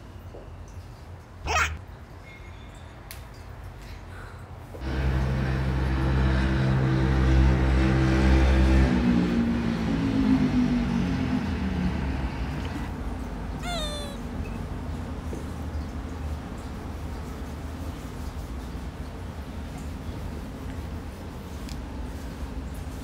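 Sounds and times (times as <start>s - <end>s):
cat meowing: 1.5s - 1.8s, 13.6s - 14.3s.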